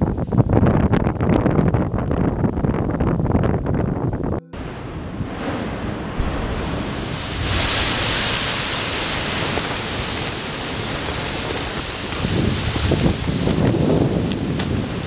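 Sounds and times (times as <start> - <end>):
wind on microphone: 0.0 - 15.0
volcanic ash explosion rushing: 4.6 - 15.0.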